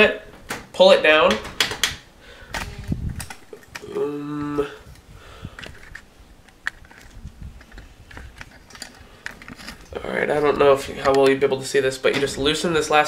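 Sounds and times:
person humming: 2.4s - 4.9s.

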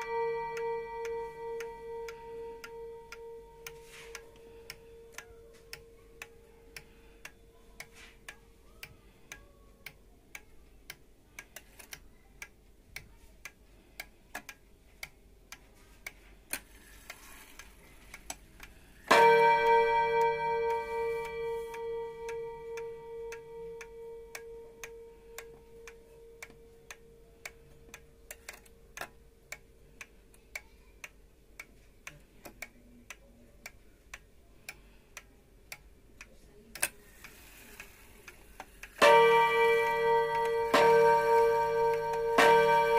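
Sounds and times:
clock gong ringing: 0.0s - 4.2s, 19.1s - 25.1s, 39.0s - 42.9s
pendulum clock ticking: 0.0s - 42.9s.

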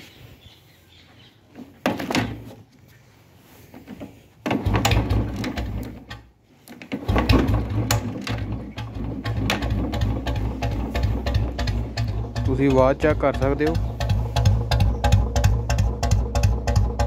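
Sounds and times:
motorcycle engine starting and idling: 1.5s - 2.7s, 3.7s - 17.0s.

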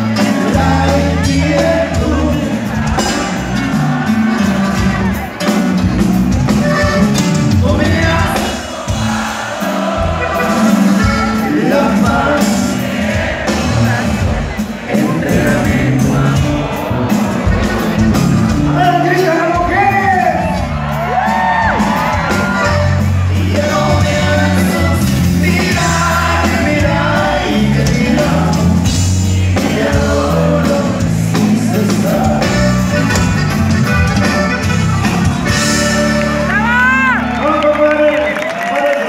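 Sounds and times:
live band with accordion: 0.0s - 38.7s
crowd shouting whoops: 20.0s - 23.0s, 36.3s - 39.0s.

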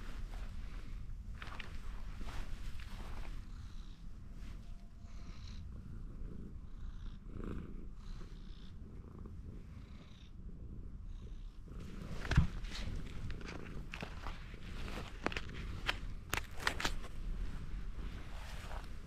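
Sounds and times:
rustling: 0.0s - 6.2s, 11.7s - 19.0s
cat purring: 0.0s - 19.0s.

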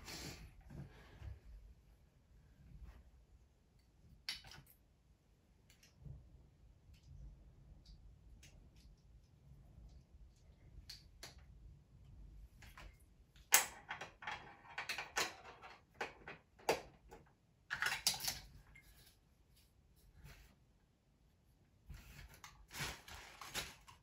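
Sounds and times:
plastic toy parts clicking and rattling: 13.5s - 16.9s.

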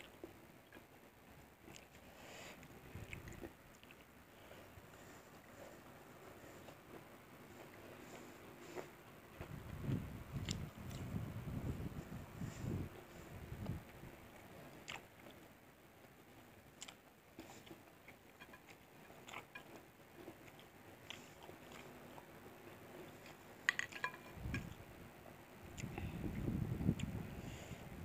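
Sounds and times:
chewing: 1.6s - 2.0s, 2.6s - 4.1s, 10.4s - 11.1s, 14.8s - 15.5s, 16.8s - 22.3s.

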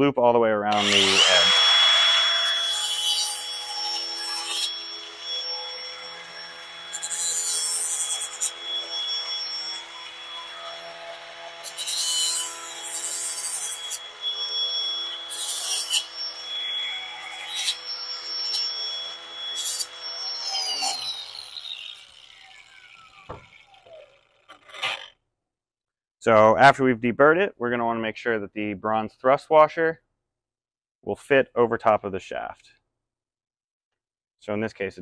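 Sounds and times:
grinder motor winding down: 0.7s - 25.1s
grinder rasping on metal: 0.7s - 25.1s
angle grinder whining: 0.7s - 25.2s.

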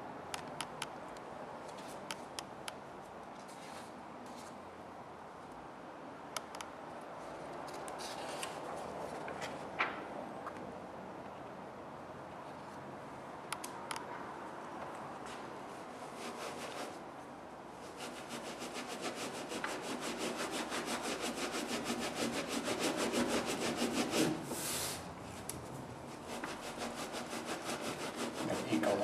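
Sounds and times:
baren rubbing paper: 16.1s - 17.0s, 17.8s - 24.7s, 26.1s - 29.0s.

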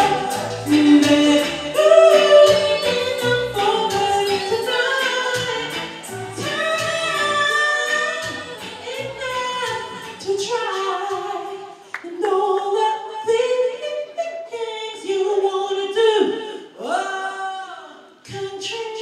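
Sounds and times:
backing track with bass: 0.0s - 10.5s
woman singing into microphone: 0.0s - 19.0s.

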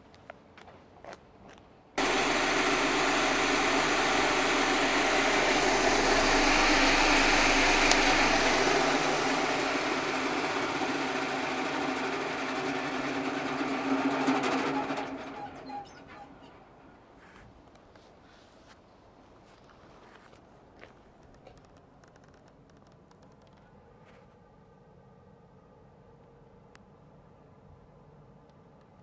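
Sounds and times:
vibrating sieve buzzing and rattling: 2.0s - 15.6s.

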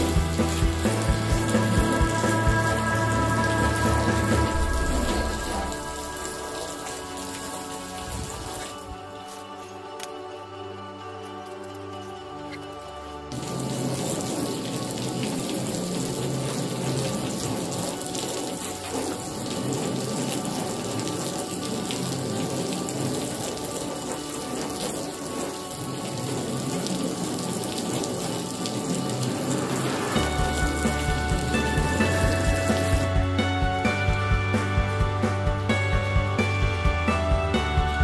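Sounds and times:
water running onto car panel: 5.2s - 9.4s, 12.7s - 33.1s.

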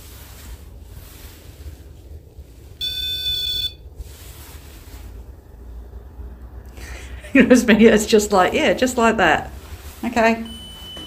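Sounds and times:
electronic alarm tone: 2.8s - 3.8s.

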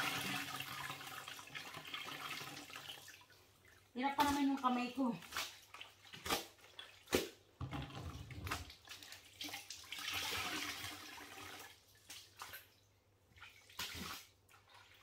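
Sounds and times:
water pouring into bucket: 0.0s - 3.4s, 7.7s - 11.9s
bucket and wringer knocks: 7.6s - 8.7s.

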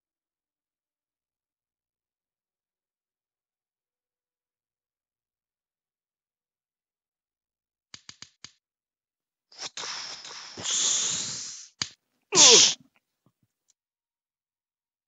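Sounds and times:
quick clicks: 7.9s - 8.6s
breathy hiss: 9.6s - 12.8s
vocal cry sliding down in pitch: 12.4s - 12.8s.

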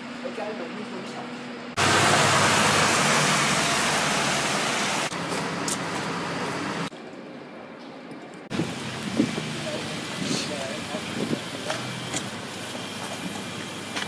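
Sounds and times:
low engine hum: 1.7s - 6.9s
tyre spray on wet street: 1.8s - 6.9s, 8.5s - 14.0s.

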